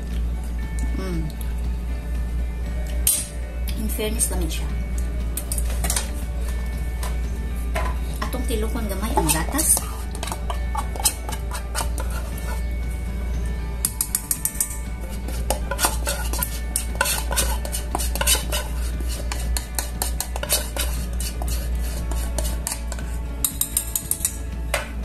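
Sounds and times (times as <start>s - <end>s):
whisk clinking in metal saucepan: 9.2s - 12.6s, 15.3s - 24.3s.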